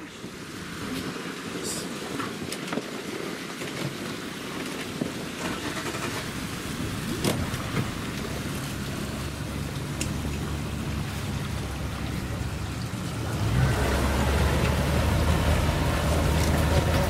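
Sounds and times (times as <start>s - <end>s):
water lapping and splashing: 0.0s - 17.0s
low rumble: 5.6s - 17.0s.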